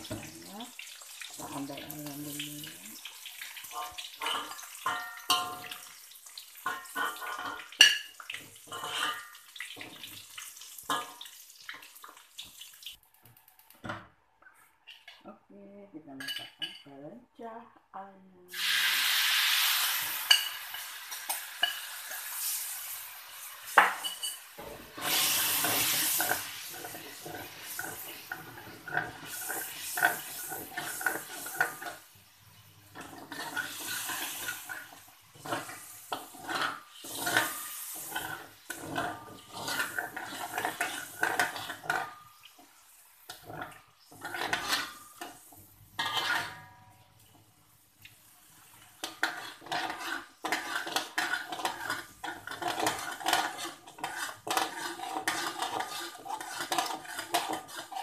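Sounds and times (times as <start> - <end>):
metal spatula scraping a wok: 6.6 - 10.0, 18.6 - 32.1, 32.9 - 42.2, 43.2 - 47.0, 48.7 - 58.0.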